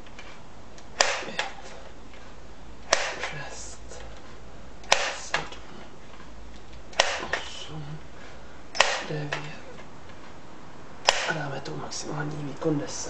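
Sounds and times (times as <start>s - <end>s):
air rifle pump clacks and clicks: 0.0s - 7.6s, 8.8s - 10.3s, 11.0s - 11.4s.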